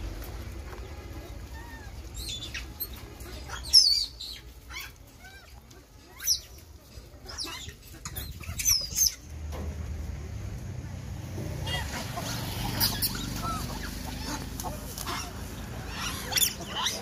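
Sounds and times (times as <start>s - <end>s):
monkeys squealing: 1.6s - 9.3s, 11.6s - 17.0s.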